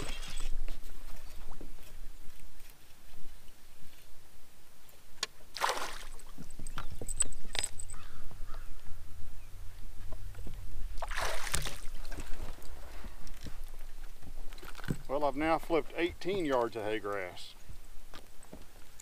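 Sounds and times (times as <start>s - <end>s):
fish splashing at surface: 5.6s - 6.3s, 11.0s - 12.3s.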